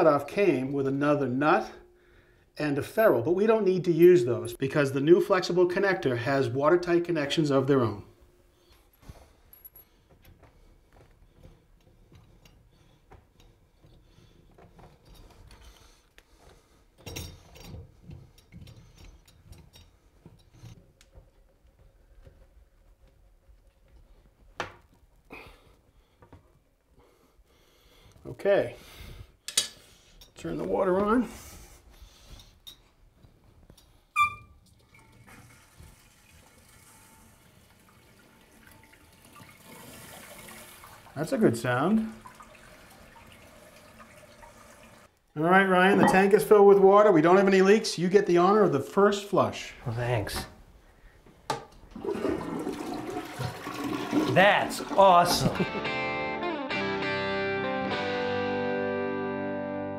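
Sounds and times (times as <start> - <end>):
toilet tank filling with water: 34.2 - 45.2, 51.9 - 55.6.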